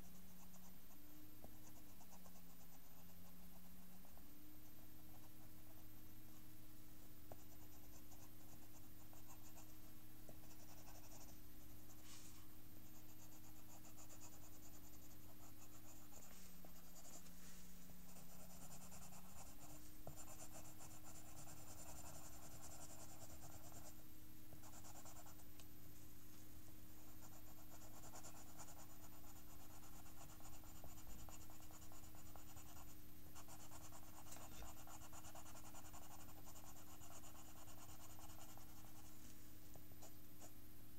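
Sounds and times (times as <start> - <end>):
pencil scratching on paper: 7.3 - 24.0, 24.6 - 25.4, 27.1 - 39.1.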